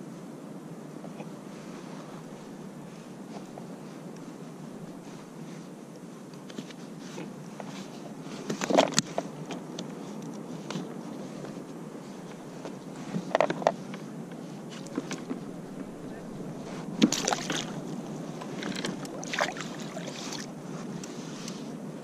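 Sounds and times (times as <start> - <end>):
faint hiss: 0.0 - 22.0
knocks and rattles on plastic kayak: 14.8 - 20.5.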